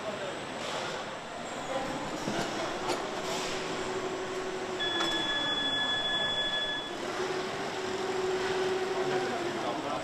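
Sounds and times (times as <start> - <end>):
conveyor machinery hum and whine: 0.0 - 10.0
high steady tone: 4.7 - 7.0.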